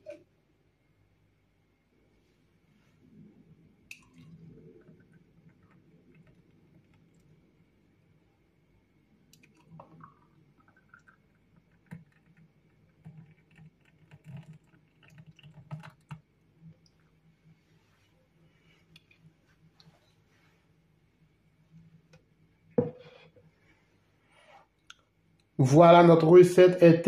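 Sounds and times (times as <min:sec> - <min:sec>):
low steady hum: 0:00.0 - 0:27.0
clicks and taps while pouring: 0:09.3 - 0:17.1.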